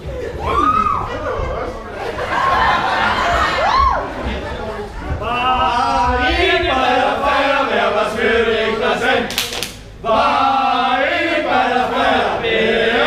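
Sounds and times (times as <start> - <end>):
group chanting in unison: 5.2 - 9.4, 10.0 - 13.0.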